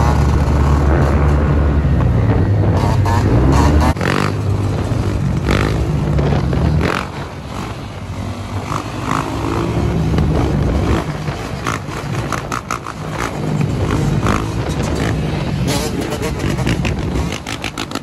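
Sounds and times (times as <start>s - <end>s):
quad bike engine revving: 0.0s - 18.0s.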